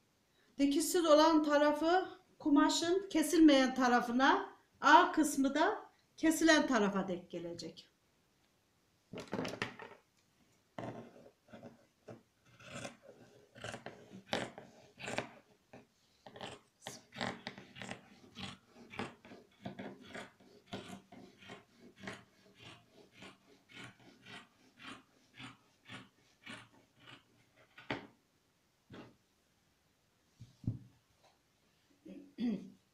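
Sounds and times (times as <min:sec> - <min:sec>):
scissors snipping fabric: 0:12.5 - 0:15.4, 0:16.3 - 0:28.1.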